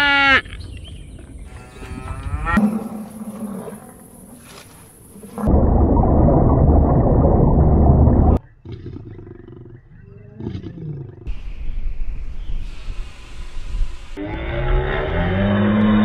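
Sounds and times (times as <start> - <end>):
low rumble: 1.3 - 8.4
animal roaring: 1.5 - 11.3, 14.2 - 16.0.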